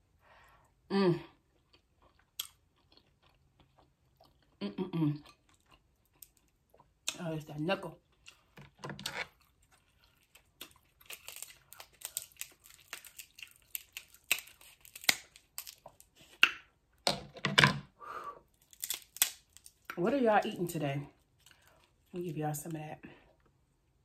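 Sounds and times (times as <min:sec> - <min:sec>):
chewing: 0:01.4 - 0:07.2, 0:08.0 - 0:16.4
crab shell cracking: 0:06.1 - 0:06.5, 0:10.2 - 0:16.6, 0:18.6 - 0:20.0.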